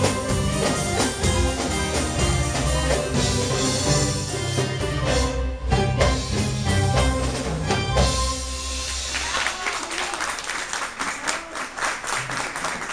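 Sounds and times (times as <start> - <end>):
live band playing belly-dance music: 0.0 - 9.7
audience applause: 8.8 - 12.9.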